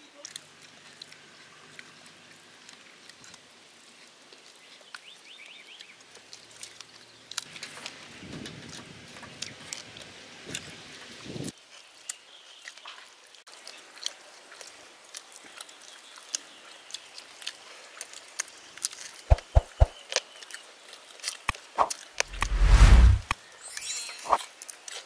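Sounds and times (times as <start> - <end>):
chewing and lip-smacking: 13.9 - 19.2
low thumps: 19.3 - 19.9
loud low rumble: 22.3 - 23.3.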